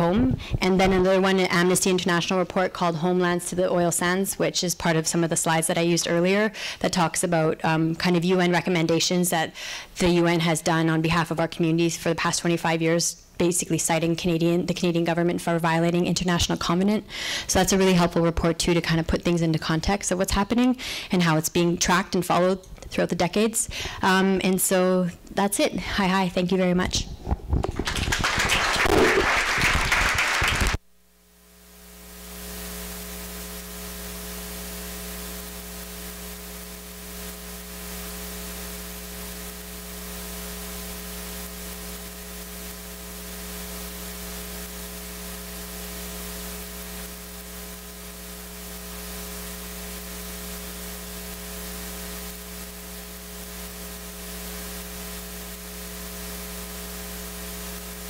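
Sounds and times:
electrical mains hum and hiss: 0.0s - 58.0s
audience applauding: 27.7s - 30.8s.

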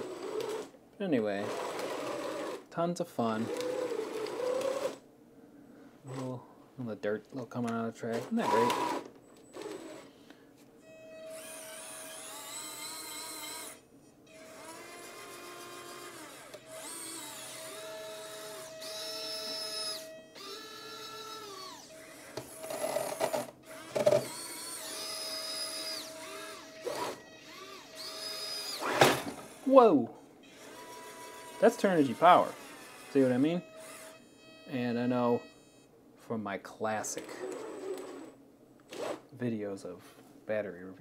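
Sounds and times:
small electric motors whining: 0.0s - 0.7s, 1.4s - 2.6s, 3.4s - 5.0s, 8.4s - 10.1s, 10.8s - 29.8s, 30.4s - 35.4s, 37.2s - 39.2s.

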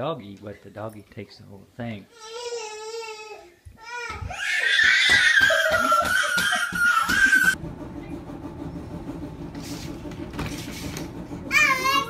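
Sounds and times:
toddler screaming and wailing: 2.2s - 7.6s
adult laughing: 5.3s - 7.6s
steady low hum: 7.4s - 12.0s.

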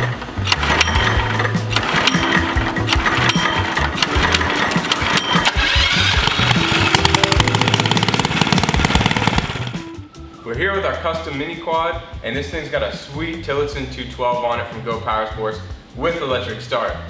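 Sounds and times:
recoil cord pull-start: 0.0s - 9.8s
small engine running: 0.0s - 9.8s
background music with steady beat: 0.0s - 17.0s.

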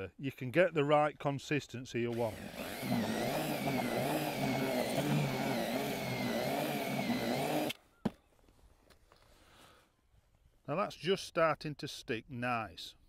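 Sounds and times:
cordless drill mixing in a bucket: 2.1s - 7.8s.

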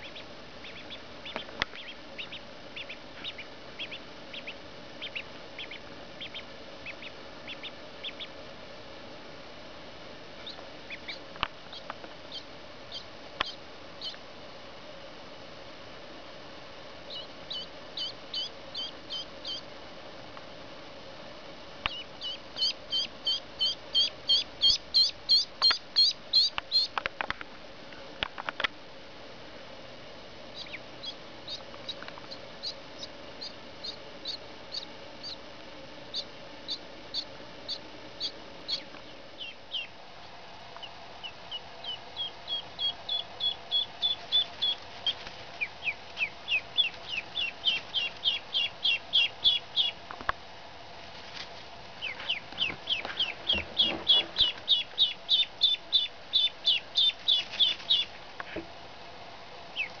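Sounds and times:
ducklings peeping: 0.0s - 8.5s, 10.4s - 14.3s, 17.0s - 19.8s, 21.8s - 27.1s, 30.4s - 50.3s, 51.4s - 58.6s, 59.6s - 60.0s.

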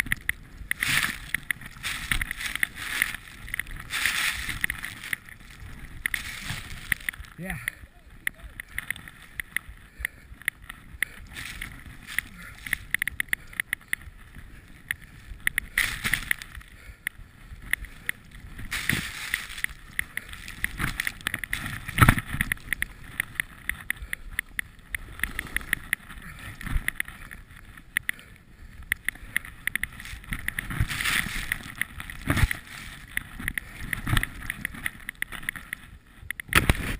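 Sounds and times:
skis rushing through powder snow: 0.0s - 7.6s, 18.1s - 23.6s, 29.9s - 35.7s
small knocks and clicks: 0.0s - 36.9s.

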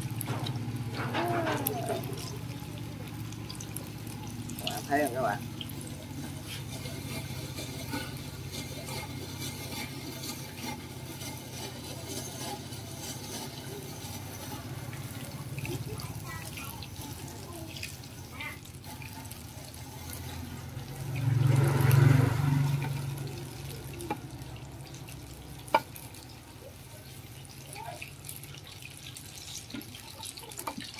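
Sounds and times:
blade scraping through potato: 5.8s - 24.2s.

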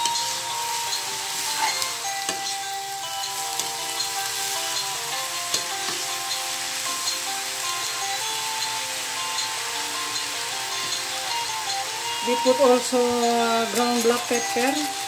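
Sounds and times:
metal spatula scraping: 0.0s - 7.1s
vegetables sizzling in a wok: 0.0s - 15.0s.

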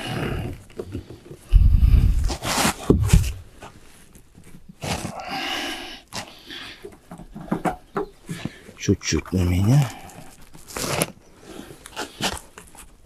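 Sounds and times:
metal sheet flexing thuds: 1.5s - 3.5s
sheet scraping against membrane: 1.5s - 4.0s, 10.6s - 12.6s.

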